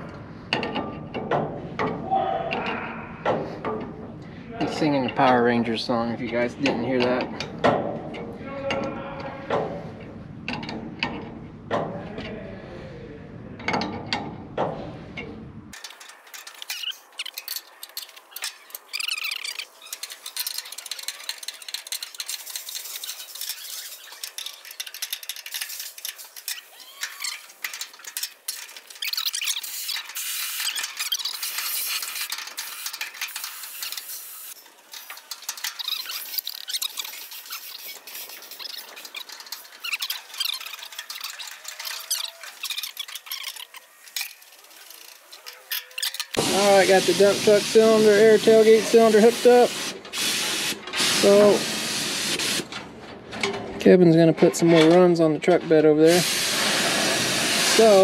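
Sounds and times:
hand tools clinking on metal: 15.8s - 46.4s.

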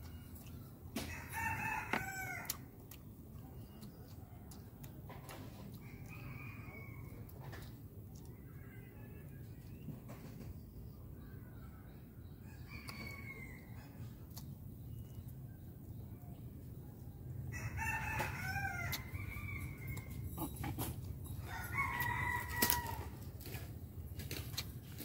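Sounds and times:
rooster crowing: 21.4s - 23.2s.

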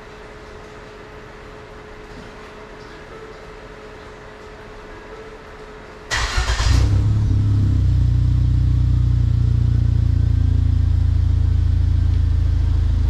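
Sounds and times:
car engine cranking: 6.1s - 8.0s
car engine idling: 6.1s - 13.0s.

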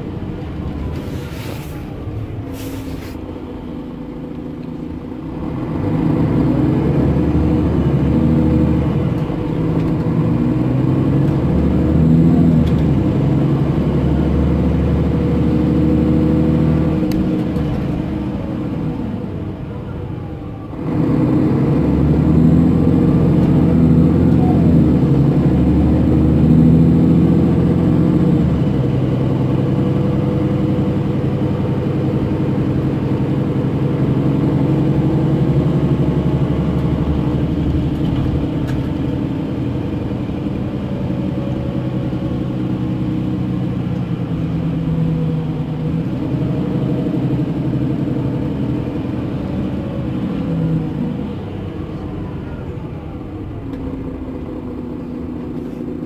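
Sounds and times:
bus diesel engine pulling: 0.0s - 56.0s.

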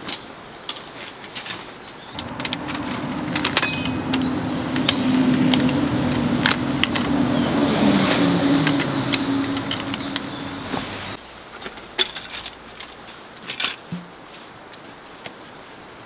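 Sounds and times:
steady low hum: 2.2s - 11.2s.

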